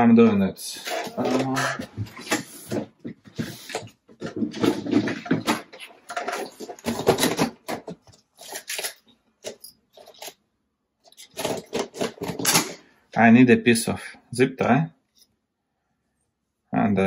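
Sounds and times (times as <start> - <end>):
rummaging in plastic parts box: 0.8 - 10.4, 11.1 - 12.8.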